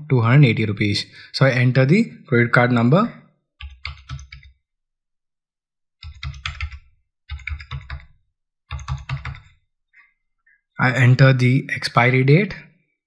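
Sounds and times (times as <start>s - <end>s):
typing on computer keyboard: 3.6s - 4.6s, 6.0s - 9.6s.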